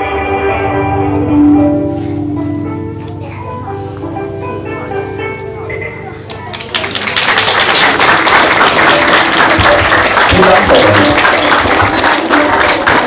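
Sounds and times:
faint music: 0.0 - 13.0
audience applauding: 6.4 - 13.0.

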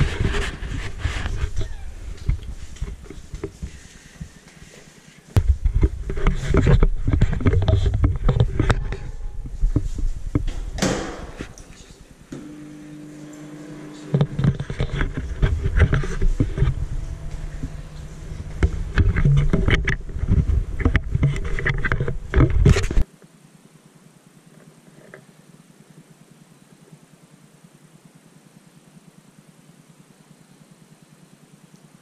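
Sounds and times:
camera rubbing and knocking: 0.0 - 11.6, 14.0 - 23.0
footsteps: 0.0 - 12.5, 13.2 - 23.0
microwave oven humming: 16.3 - 19.2.

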